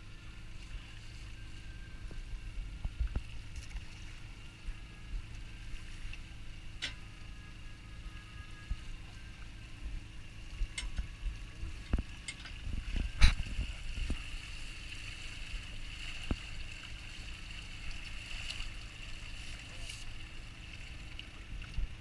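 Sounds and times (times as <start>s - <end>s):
boat machinery hum: 0.0s - 22.0s
water splashes: 8.7s - 22.0s.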